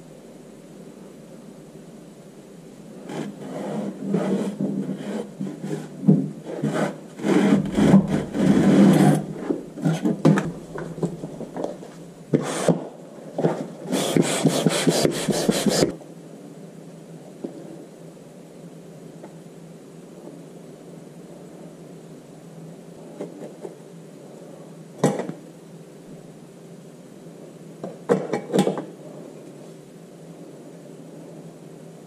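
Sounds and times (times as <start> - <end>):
hands scraping sand: 3.1 - 9.6, 13.9 - 15.9.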